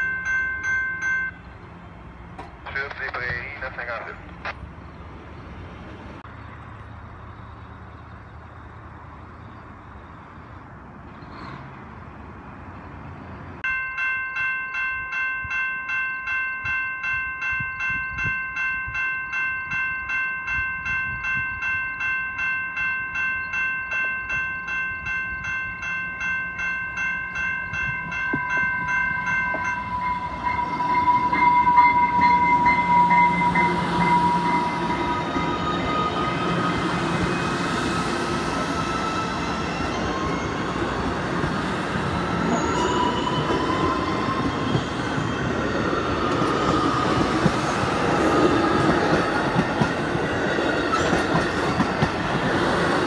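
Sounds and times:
level-crossing warning bell: 0:00.0 - 0:01.6, 0:13.6 - 0:52.4.

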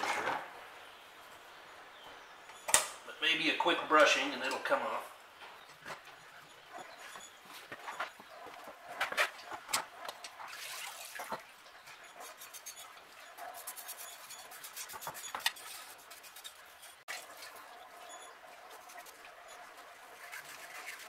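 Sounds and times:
wire brush scrubbing: 0:05.9 - 0:21.0
water splashing and dripping: 0:09.4 - 0:13.8.

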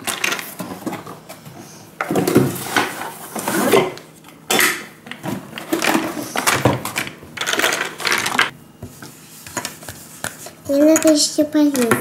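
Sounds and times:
plastic toy tools clattering: 0:00.0 - 0:01.0, 0:04.5 - 0:08.5.

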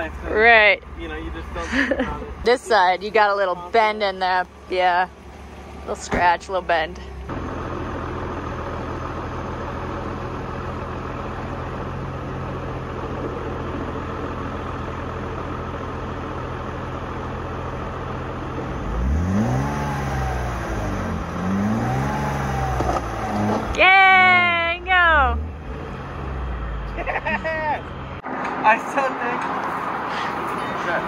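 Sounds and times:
vehicle engine revving: 0:18.0 - 0:28.8.

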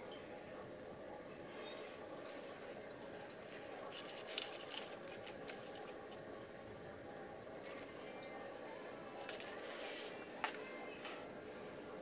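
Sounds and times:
hands rustling plant leaves: 0:02.2 - 0:06.4.

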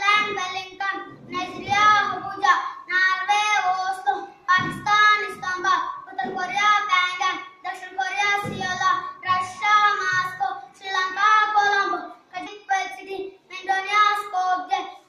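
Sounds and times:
boy singing: 0:00.0 - 0:14.8.

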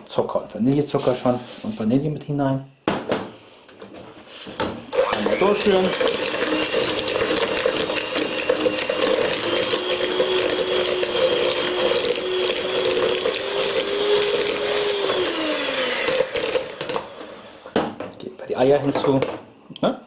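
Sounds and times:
electric hand mixer whining: 0:04.9 - 0:17.9.

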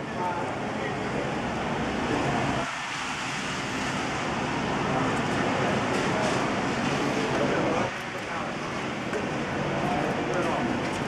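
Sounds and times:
rushing outdoor background noise: 0:00.0 - 0:11.0.

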